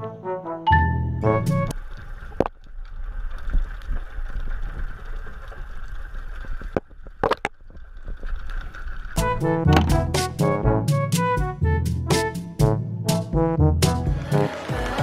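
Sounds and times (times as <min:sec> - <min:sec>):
muffled rumble of moving water: 0:01.3 - 0:10.3.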